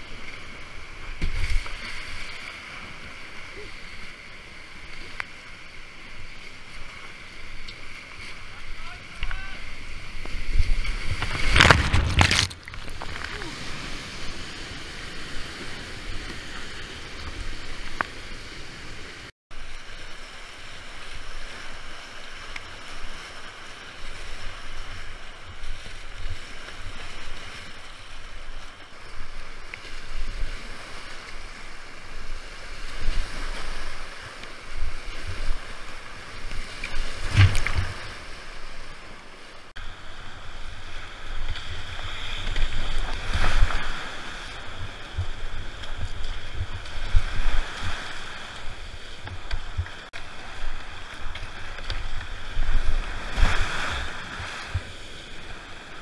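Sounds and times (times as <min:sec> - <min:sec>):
wind on microphone: 0:40.0 - 0:56.0.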